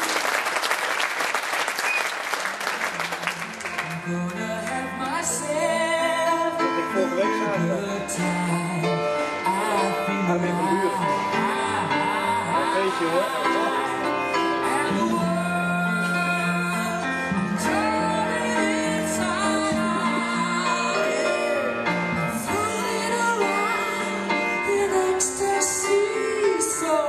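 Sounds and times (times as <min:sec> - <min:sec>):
audience applause: 0:00.0 - 0:04.1
song with singing voice: 0:03.3 - 0:27.0.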